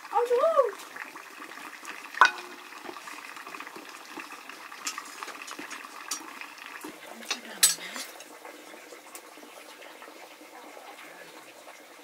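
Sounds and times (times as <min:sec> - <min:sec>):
sharp ringing metal clank: 0:02.2 - 0:02.6
utensils knocking on cookware: 0:02.2 - 0:02.6.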